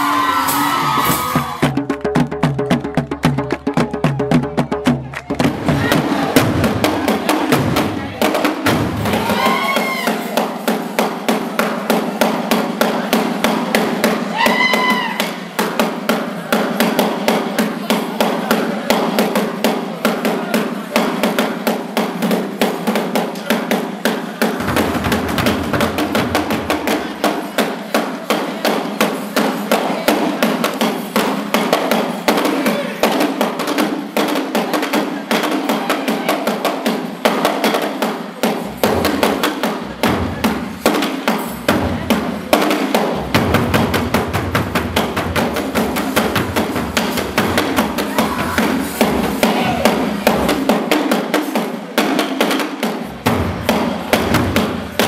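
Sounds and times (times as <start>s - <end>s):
bass drum booming: 0.0s - 9.6s, 24.6s - 27.3s, 41.5s - 50.8s
drums beaten with sticks: 0.0s - 55.0s.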